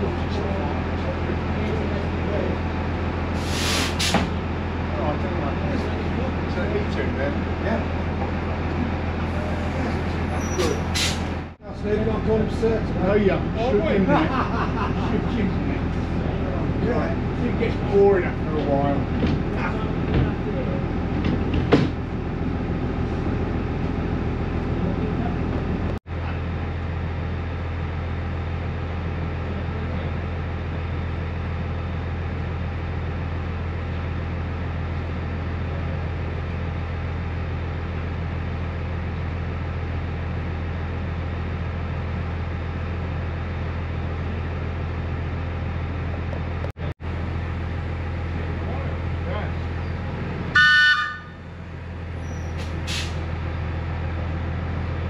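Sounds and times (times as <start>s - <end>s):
railcar running noise: 0.0s - 55.0s.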